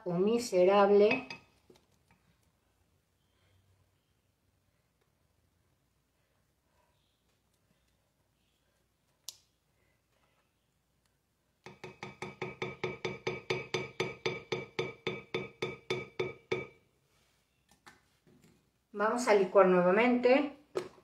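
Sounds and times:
spatula tapping glass blender jar: 0:01.0 - 0:01.5, 0:11.6 - 0:16.8.

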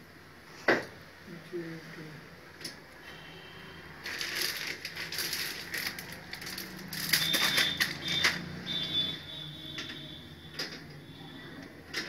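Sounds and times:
packaging crinkling: 0:04.0 - 0:08.5.

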